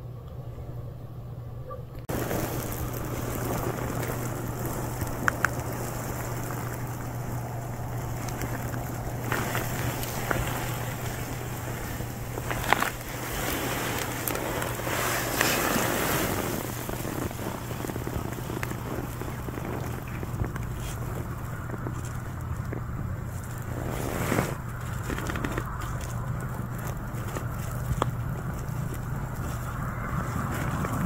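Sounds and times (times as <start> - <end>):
constant low hum: 0.0 - 31.0.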